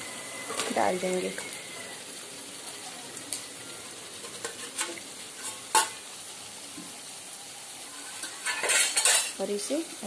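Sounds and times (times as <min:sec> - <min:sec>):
chicken sizzling in a pan: 0:00.0 - 0:10.0
metal spatula scraping a pan: 0:04.2 - 0:06.0, 0:07.9 - 0:09.4.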